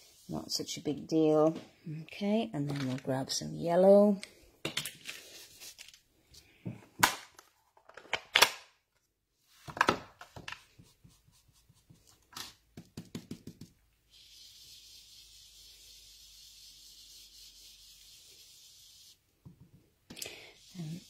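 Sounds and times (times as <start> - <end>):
brush rubbing on card: 0.0 - 0.6, 10.6 - 12.3, 13.2 - 19.2, 20.5 - 21.0.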